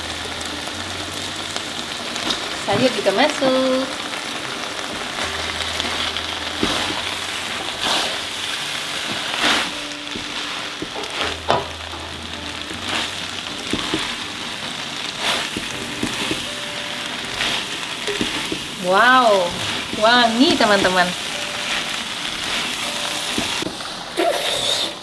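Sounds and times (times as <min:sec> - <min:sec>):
noodles sizzling in a wok: 0:00.0 - 0:25.0.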